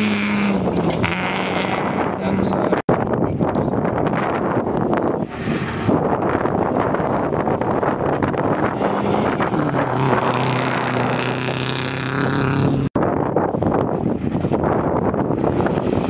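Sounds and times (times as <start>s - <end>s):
rally car engine under hard throttle: 0.0s - 16.0s
wind on microphone: 0.0s - 16.0s.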